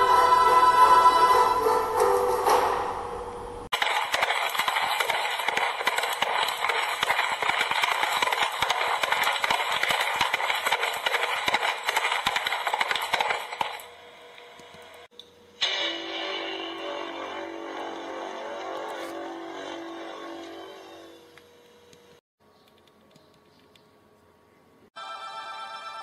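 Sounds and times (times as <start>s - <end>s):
dense clattering and crackling: 3.7s - 13.8s.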